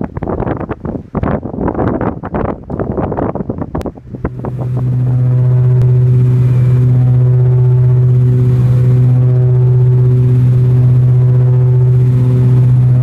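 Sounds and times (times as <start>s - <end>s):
wind buffeting microphone: 0.0s - 13.0s
propeller aircraft cabin drone: 3.8s - 13.0s.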